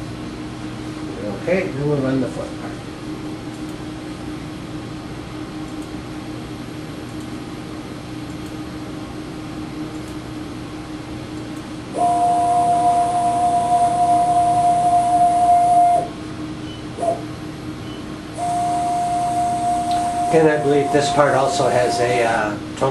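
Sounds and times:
low machine hum: 0:00.0 - 0:22.9
motor whine with high hiss: 0:11.9 - 0:22.9.

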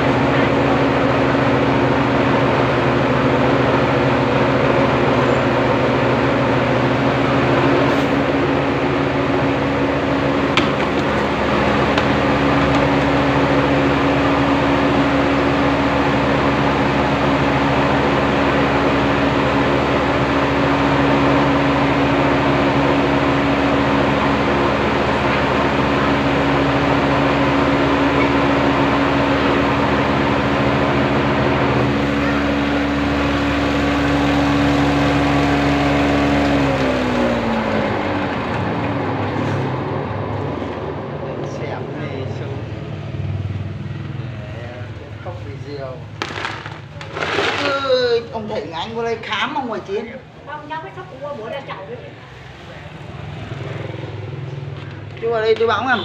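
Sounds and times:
milling machine droning: 0:00.0 - 0:44.4.

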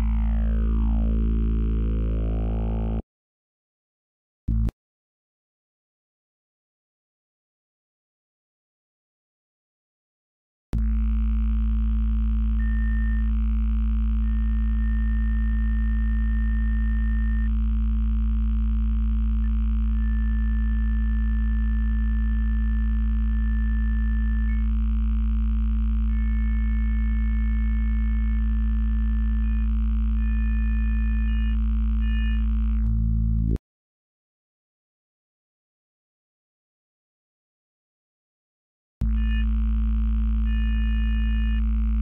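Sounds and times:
low buzzy synthesizer drone: 0:00.0 - 0:03.0, 0:10.8 - 0:33.6.

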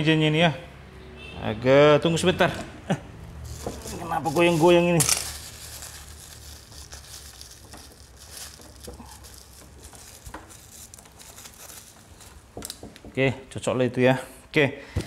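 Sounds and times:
light rustling: 0:03.4 - 0:12.8.

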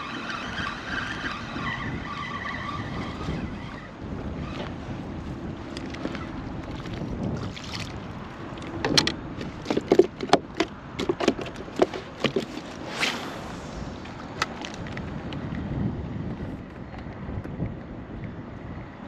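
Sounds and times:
wind noise on microphone: 0:00.0 - 0:19.0
gear knocking against plastic kayak: 0:08.7 - 0:12.8.

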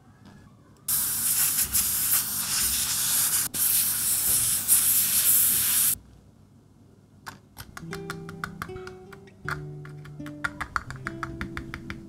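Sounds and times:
airbrush hissing air jet: 0:00.9 - 0:06.0.

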